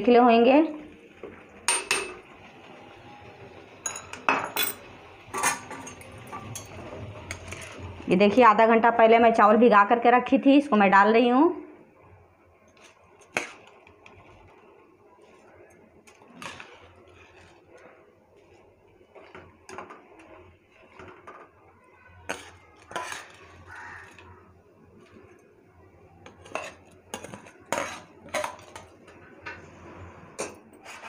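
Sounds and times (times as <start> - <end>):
utensils clinking on steel pot: 1.7 - 2.2, 3.8 - 7.8, 22.2 - 24.3, 26.2 - 29.2
rice poured into boiling water: 12.7 - 28.4.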